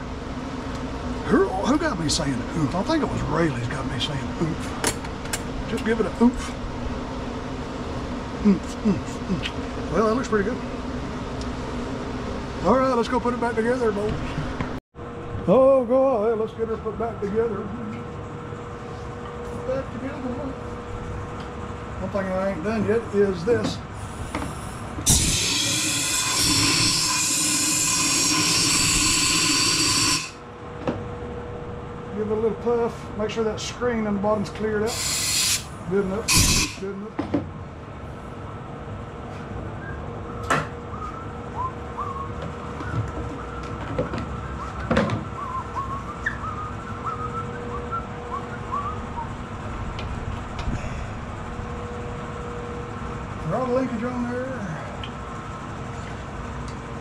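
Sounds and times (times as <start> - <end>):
steady hum: 0.0 - 57.0
compressed air blow gun hissing: 24.0 - 30.4, 34.9 - 36.8
short whistled chirps: 39.8 - 43.7, 44.4 - 49.4.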